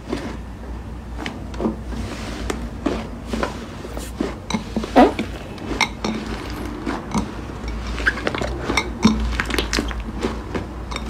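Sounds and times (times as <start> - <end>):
slime squelch: 2.0 - 11.0
slime squeezed by hand: 4.9 - 5.4.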